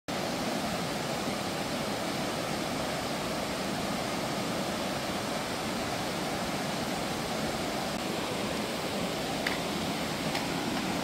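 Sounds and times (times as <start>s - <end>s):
stream rushing over rocks: 0.1s - 11.0s.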